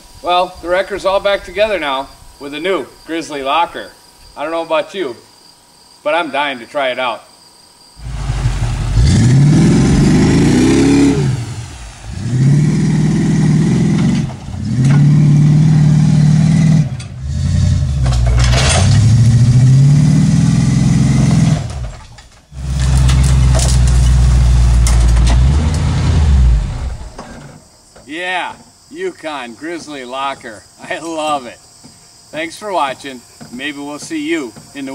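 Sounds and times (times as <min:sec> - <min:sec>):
truck engine revving: 0:08.0 - 0:27.6.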